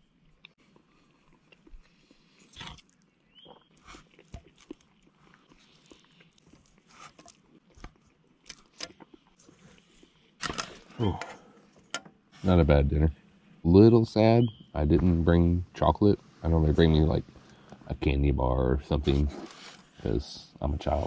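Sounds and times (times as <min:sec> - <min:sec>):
person chewing: 0:00.3 - 0:11.9.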